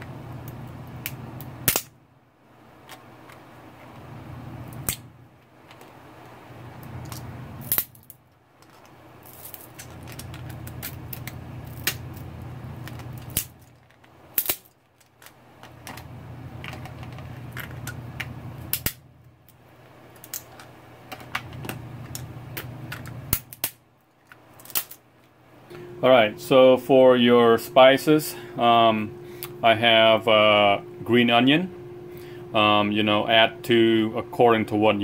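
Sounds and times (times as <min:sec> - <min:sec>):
low steady hum: 0:00.0 - 0:35.0
crab shells cracking: 0:07.0 - 0:12.2, 0:12.8 - 0:16.0.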